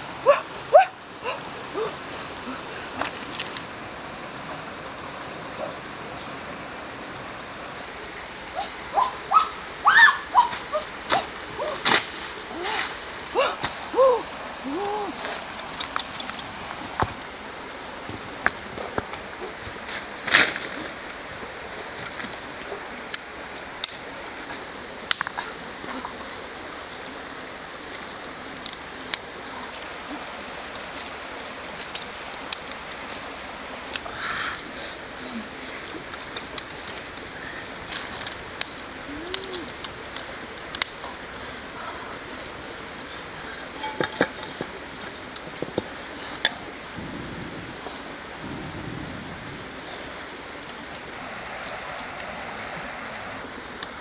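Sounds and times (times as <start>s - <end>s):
creek water running over stones: 0.0s - 54.0s
wood fire crackling: 10.3s - 52.7s.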